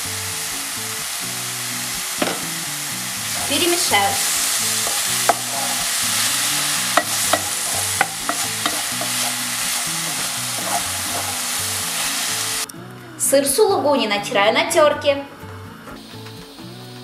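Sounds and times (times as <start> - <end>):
mushrooms sizzling in a pan: 0.0 - 12.7.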